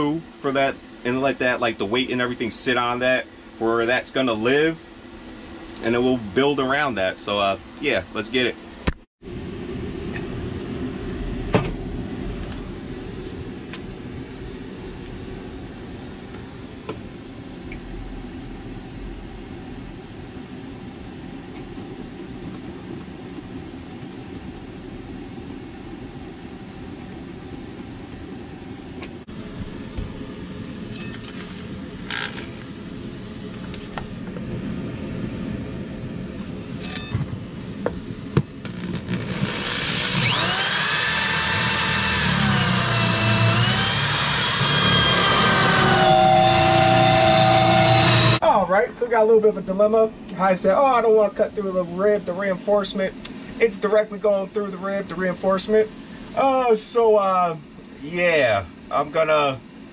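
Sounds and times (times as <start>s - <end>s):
low steady hum: 0.0s - 59.9s
drill motor whine: 32.0s - 32.8s, 38.6s - 48.4s.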